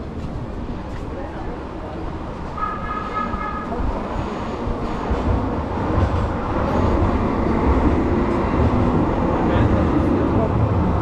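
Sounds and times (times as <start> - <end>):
rail vehicle rumbling past: 0.0 - 11.0.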